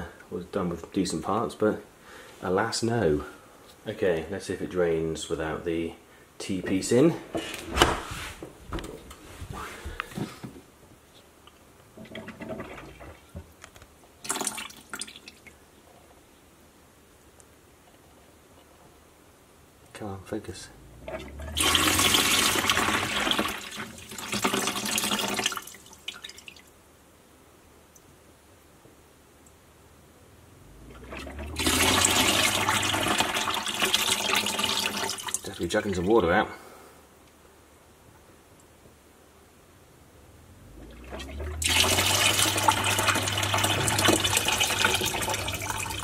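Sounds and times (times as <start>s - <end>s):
drain pump humming: 11.9s - 13.6s, 20.6s - 26.5s, 30.5s - 36.1s, 40.6s - 46.0s
water gushing into plastic bucket: 12.0s - 13.4s, 14.2s - 15.6s, 21.1s - 26.6s, 31.0s - 35.6s, 40.9s - 46.0s
water dripping: 14.2s - 15.6s, 21.0s - 26.8s, 30.9s - 36.0s, 40.8s - 46.0s.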